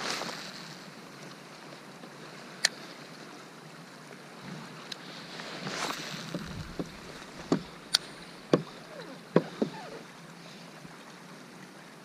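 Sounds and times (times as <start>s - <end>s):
paddle swishing water: 0.0s - 11.7s
knocks against kayak hull: 6.3s - 7.8s, 8.5s - 10.0s.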